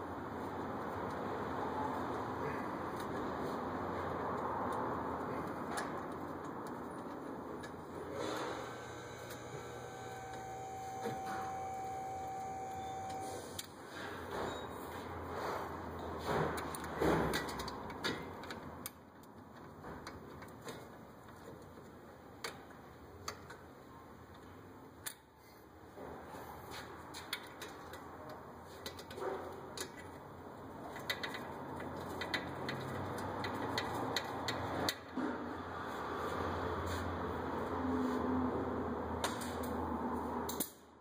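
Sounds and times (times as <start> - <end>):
low steady hum: 8.7 - 13.5.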